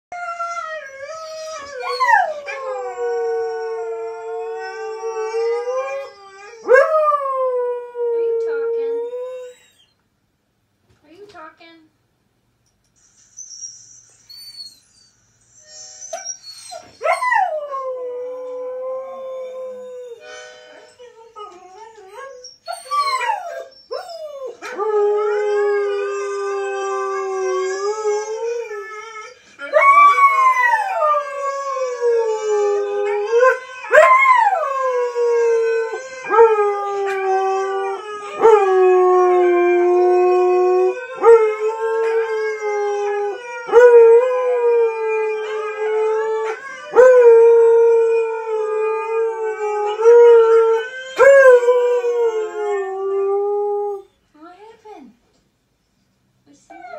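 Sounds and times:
huskies howling from television: 0.2s - 9.9s, 15.7s - 20.2s, 21.2s - 54.1s.

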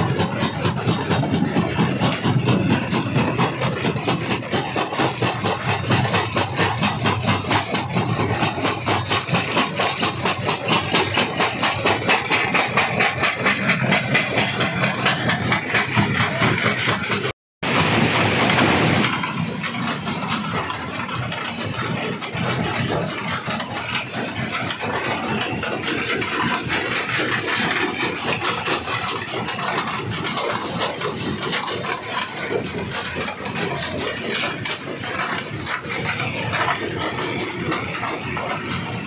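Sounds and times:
stone crusher running: 0.0s - 39.0s.

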